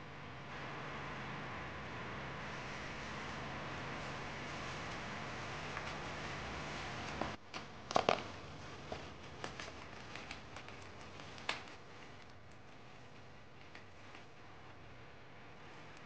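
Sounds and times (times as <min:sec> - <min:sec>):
bubble wrap crinkling: 0:02.4 - 0:14.3.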